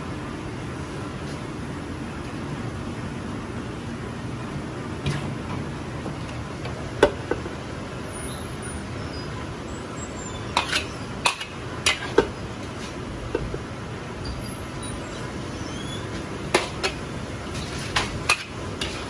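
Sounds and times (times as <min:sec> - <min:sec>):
kitchen background noise: 0:05.0 - 0:19.0
metal utensils clinking on a wok: 0:16.6 - 0:19.0.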